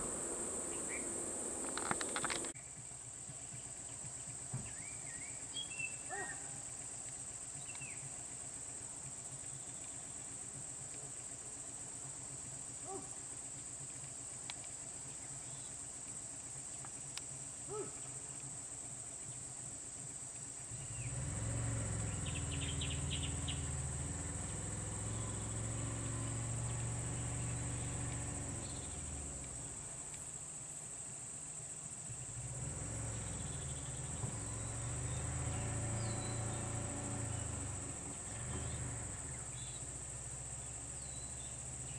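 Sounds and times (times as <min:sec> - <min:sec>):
bird chirps: 0:00.0 - 0:02.6, 0:22.1 - 0:23.8
low engine hum: 0:00.0 - 0:02.6, 0:20.7 - 0:30.3, 0:32.2 - 0:41.9
insects droning: 0:00.0 - 0:41.9.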